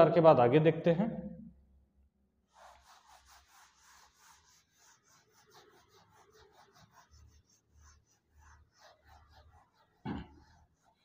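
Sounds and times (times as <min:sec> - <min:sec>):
duster rubbing on whiteboard: 0:02.5 - 0:11.0.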